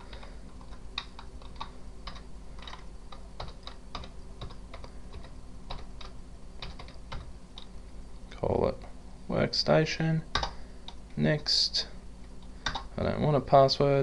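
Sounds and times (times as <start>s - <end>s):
typing on computer keyboard: 0.0s - 7.7s, 10.3s - 11.0s, 12.6s - 12.9s.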